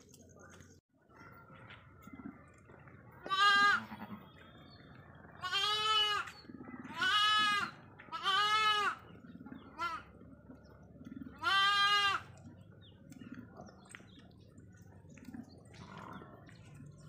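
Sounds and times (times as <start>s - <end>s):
sheep bleating: 3.2s - 4.4s, 5.4s - 9.0s, 11.4s - 12.4s.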